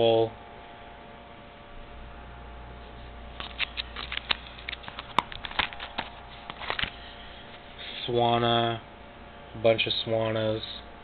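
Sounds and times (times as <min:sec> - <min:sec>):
low steady hum: 0:00.0 - 0:11.0
plastic pages crackling and clicking: 0:03.4 - 0:07.0.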